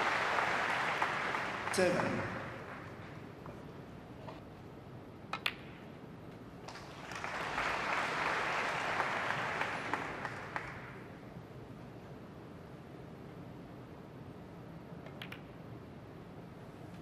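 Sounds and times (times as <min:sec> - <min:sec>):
audience applauding: 0:00.0 - 0:03.3, 0:06.7 - 0:11.1
snooker balls clicking: 0:05.3 - 0:05.9, 0:15.0 - 0:15.6.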